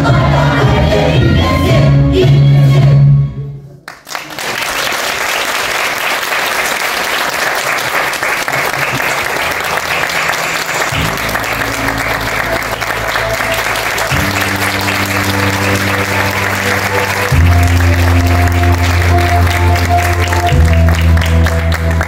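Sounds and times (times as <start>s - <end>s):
music with singing: 0.0s - 3.7s
audience applause: 3.9s - 22.0s.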